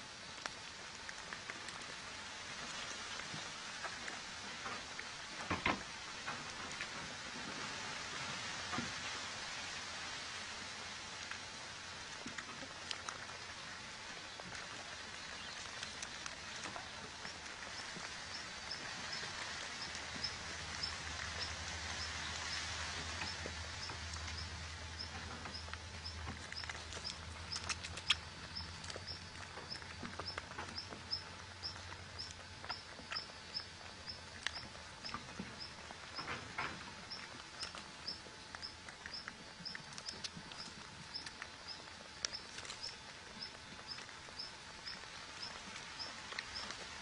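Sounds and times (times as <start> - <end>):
soft rustles in soil: 0.0 - 47.0
steady hiss: 0.0 - 47.0.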